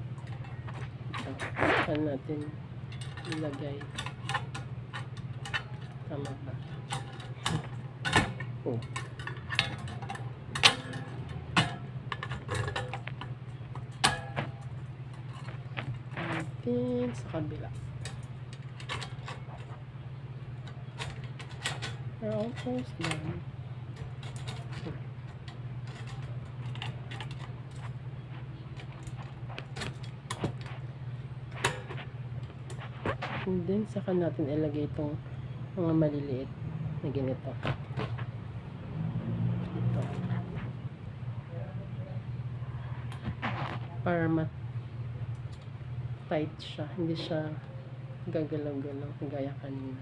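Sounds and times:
low hum: 0.0s - 50.0s
metallic clicks and clinks: 2.9s - 15.5s.

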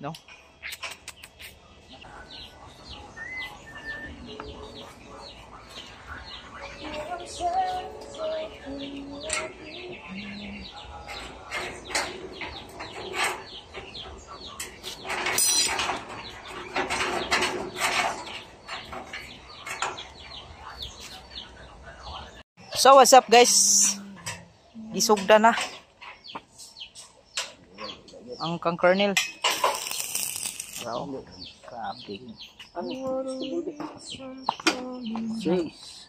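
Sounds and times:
birds chirping: 0.0s - 36.0s
metal clicks and scrapes: 29.4s - 30.9s.

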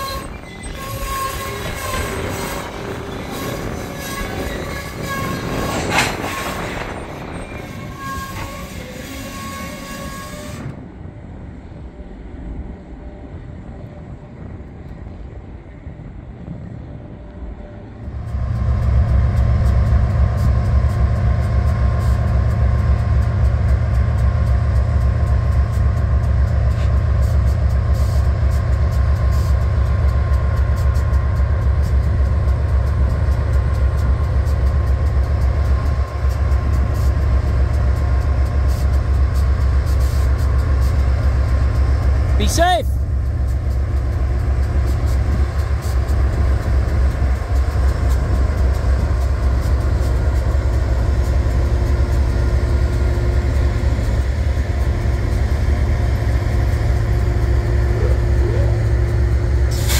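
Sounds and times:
train wheel squeal: 0.0s - 10.8s, 43.4s - 59.9s
diesel locomotives rumbling: 0.0s - 59.9s.

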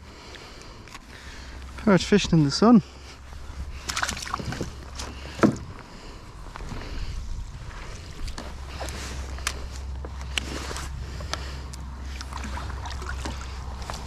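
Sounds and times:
wind rumble on microphone: 1.6s - 14.0s
water sloshing: 2.8s - 5.8s, 7.6s - 14.0s.

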